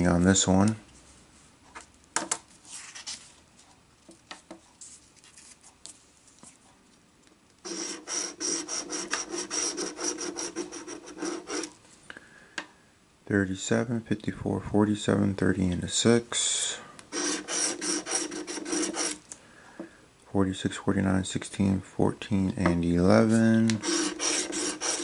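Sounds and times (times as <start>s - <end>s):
lottery ticket being scratched: 7.6s - 11.7s, 17.1s - 19.2s, 23.2s - 25.0s.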